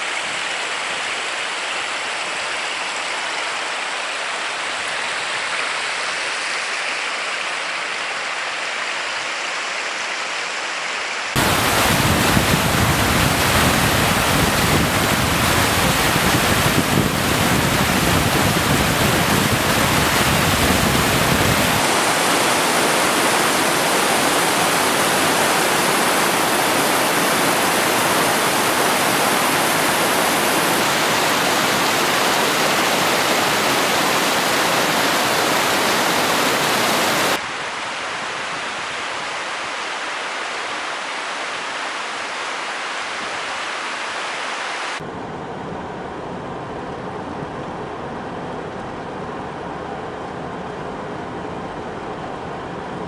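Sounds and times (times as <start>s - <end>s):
rushing mountain river: 0.0s - 45.0s.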